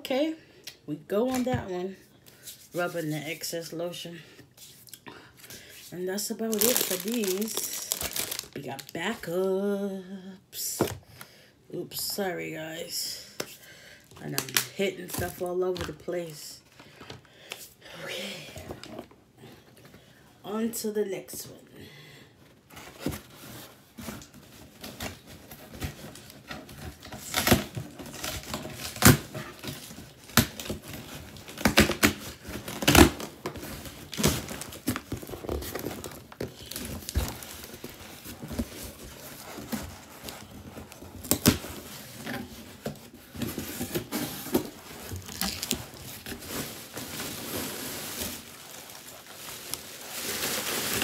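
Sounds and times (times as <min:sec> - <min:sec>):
packing tape tearing: 0:06.5 - 0:08.6, 0:26.9 - 0:38.9, 0:43.9 - 0:51.0.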